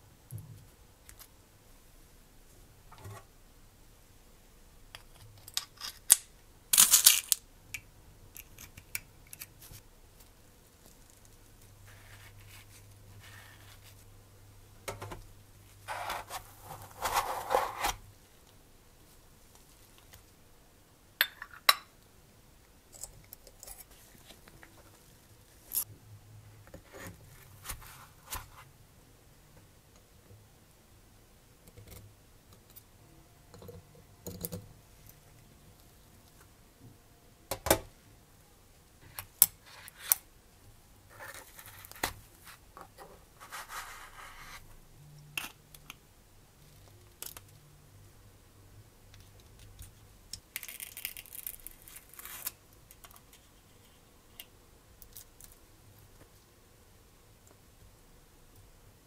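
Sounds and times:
brief rustling scrapes: 15.9 - 18.0
metal tweezers clicking and scraping: 22.9 - 24.0.

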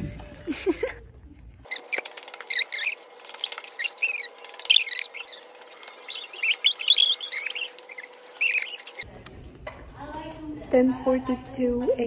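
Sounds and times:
small animals chirping and squeaking: 1.6 - 9.1.

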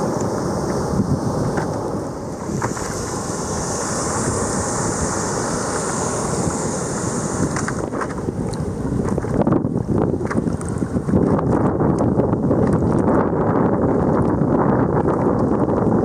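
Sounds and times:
hiss of spilling foam: 0.0 - 8.4
ocean surf breaking: 0.0 - 9.4
wind buffeting microphone: 0.0 - 16.0.

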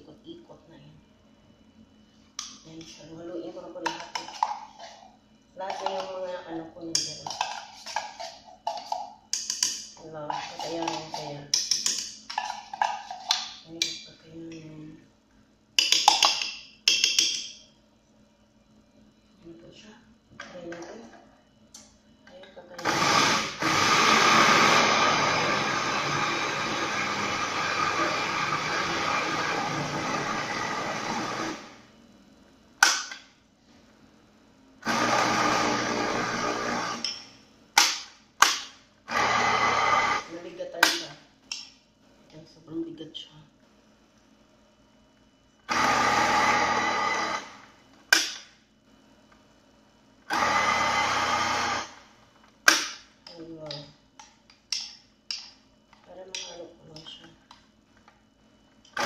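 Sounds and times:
blender motor running: 22.8 - 31.8, 34.8 - 37.1, 39.1 - 40.3, 45.7 - 47.7, 50.3 - 52.0.

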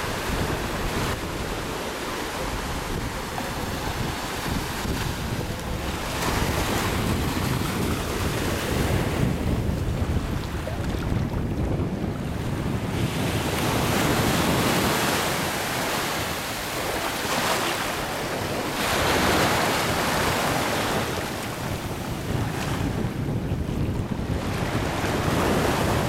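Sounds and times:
wind buffeting the microphone: 0.0 - 26.0
small waves breaking on sand: 12.6 - 23.2.

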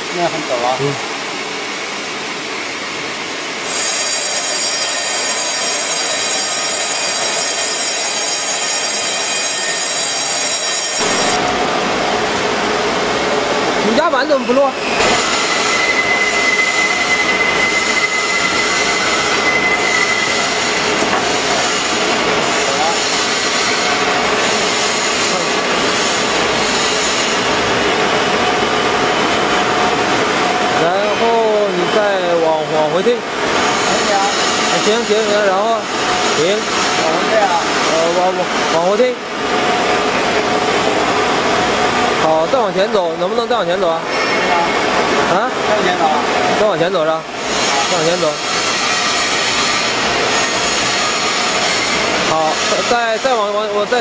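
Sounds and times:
welding machine hiss: 3.6 - 11.5, 13.8 - 27.7, 30.8 - 38.4, 47.4 - 54.0
welding machine high-pitched whine: 3.6 - 12.1, 13.8 - 54.0.

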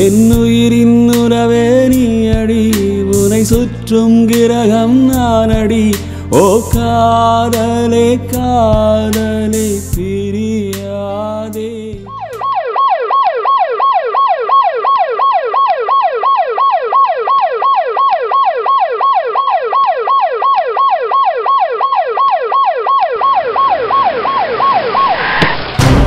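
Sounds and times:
ambulance siren wailing: 12.1 - 25.4
low rumble: 25.0 - 26.0.

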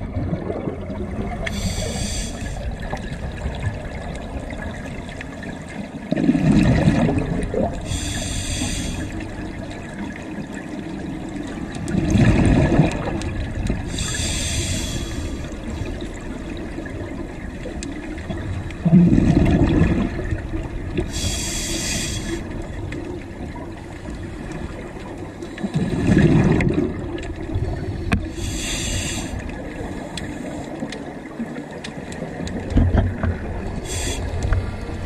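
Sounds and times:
exhaled bubbles rumbling: 0.0 - 35.0
regulator inhale hisses: 1.5 - 2.7, 7.8 - 9.2, 13.9 - 15.6, 21.1 - 22.5, 28.2 - 30.8, 33.8 - 34.5.

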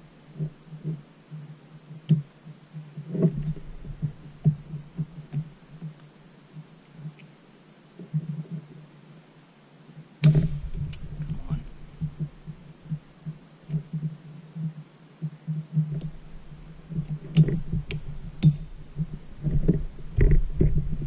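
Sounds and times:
low rumble of handling: 0.0 - 8.9, 10.3 - 21.0.

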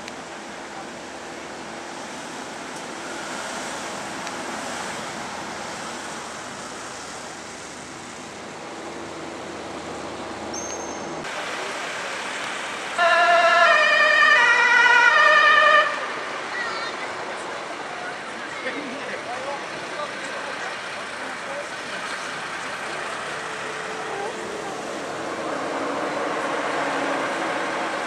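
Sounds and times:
vehicle road and engine noise: 0.0 - 28.0
ambulance siren wavering: 13.0 - 16.2.

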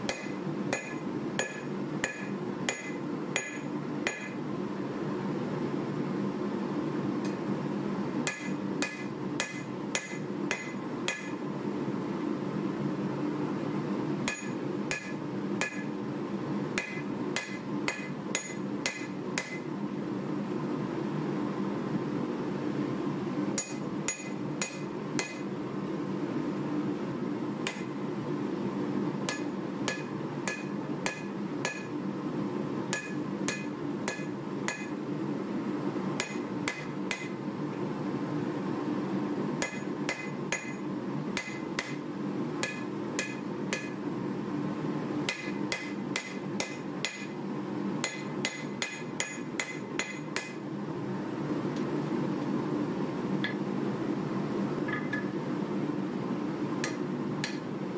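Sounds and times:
steady low hum: 0.0 - 57.9
hammer striking blade on anvil: 0.1 - 4.4, 8.2 - 11.4, 14.3 - 16.0, 16.8 - 19.7, 23.6 - 25.5, 27.6 - 27.9, 29.3 - 32.0, 32.9 - 35.0, 36.2 - 37.4, 39.6 - 40.8, 41.4 - 42.0, 42.6 - 44.0, 45.3 - 47.4, 48.0 - 50.6, 56.8 - 57.7.

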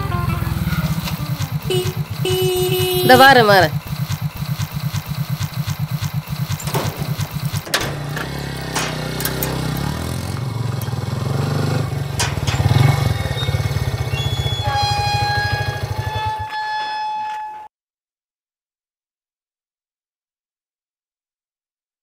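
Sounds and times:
scooter engine idling: 0.0 - 16.5
metal gate clanking: 0.7 - 17.7.

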